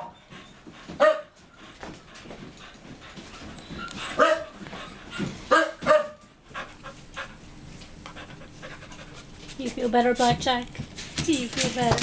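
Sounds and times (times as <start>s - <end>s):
dog barking: 1.0s - 1.3s, 4.2s - 4.6s, 5.5s - 6.2s.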